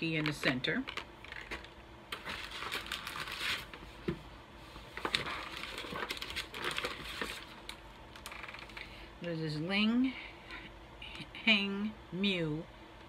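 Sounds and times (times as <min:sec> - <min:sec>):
snack packaging crinkling: 0:00.9 - 0:03.8, 0:05.0 - 0:08.8.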